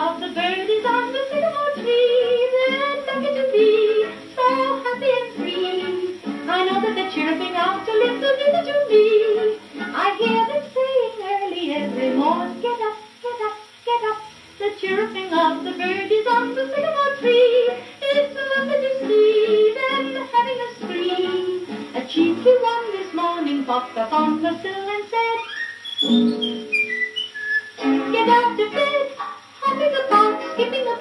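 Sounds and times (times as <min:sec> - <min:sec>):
woman singing on gramophone record: 0:00.0 - 0:25.6, 0:27.8 - 0:31.0
instrumental accompaniment: 0:14.9 - 0:31.0.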